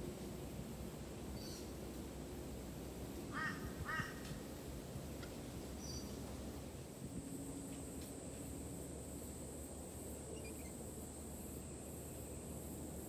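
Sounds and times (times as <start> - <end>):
faint high chirps: 10.3 - 10.8
lorikeet screeching calls: 10.3 - 10.8.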